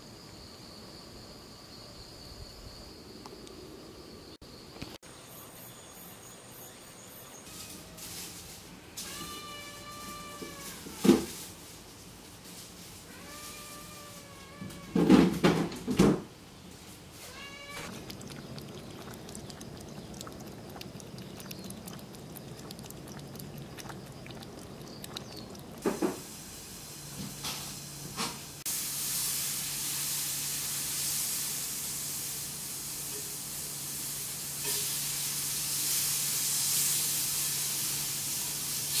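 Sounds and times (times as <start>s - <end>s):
steady hiss: 25.8s - 39.0s.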